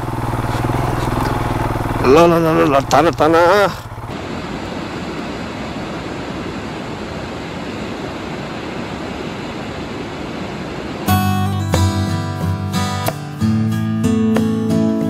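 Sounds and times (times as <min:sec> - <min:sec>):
water rushing: 0:00.0 - 0:11.1
acoustic guitar music: 0:11.0 - 0:15.0.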